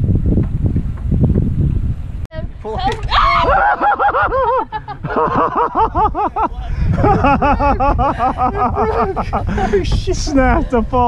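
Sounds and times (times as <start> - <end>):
wind rumbling on microphone: 0.0 - 11.0
excited high-pitched laughing: 2.9 - 9.8.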